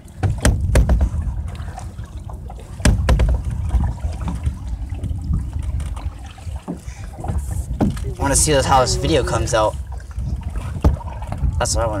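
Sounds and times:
paddles stroking through water: 0:00.0 - 0:12.0
water splashing and trickling: 0:00.0 - 0:12.0.

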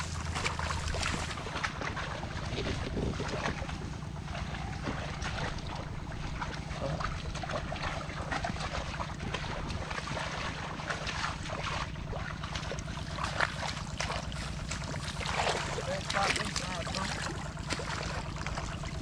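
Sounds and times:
wind buffeting microphone: 0:00.0 - 0:12.2
hands splashing in muddy water: 0:00.0 - 0:19.0.

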